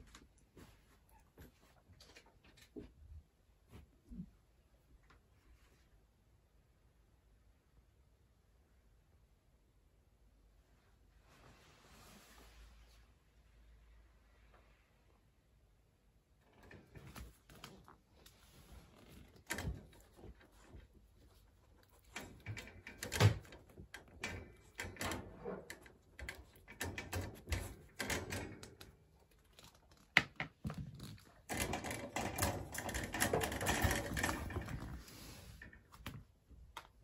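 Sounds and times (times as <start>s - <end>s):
clattering and rustling: 16.4s - 36.7s.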